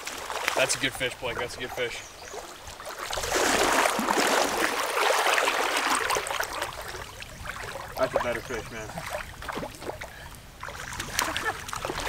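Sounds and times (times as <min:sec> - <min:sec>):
water splashing in river: 0:00.0 - 0:01.0, 0:01.6 - 0:12.0.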